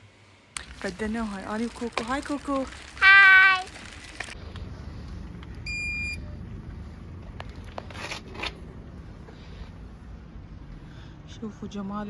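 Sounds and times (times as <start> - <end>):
low outdoor rumble: 0.0 - 12.0
elevator button beep: 5.6 - 6.2.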